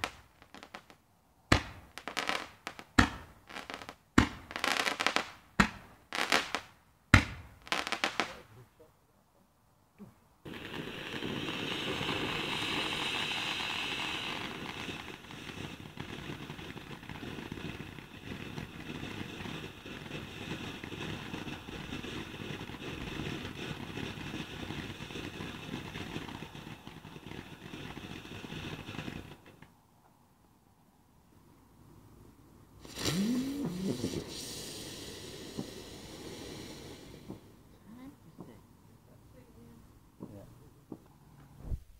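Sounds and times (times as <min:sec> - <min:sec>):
firework crackling: 0:00.0 - 0:08.5, 0:10.5 - 0:29.7, 0:32.7 - 0:38.6
firework fountain hissing: 0:10.5 - 0:29.6, 0:32.7 - 0:38.6.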